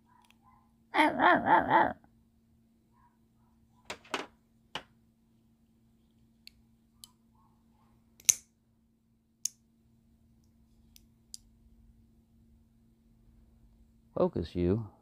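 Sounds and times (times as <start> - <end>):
sharp metal clicks of folding knife: 8.2 - 8.5.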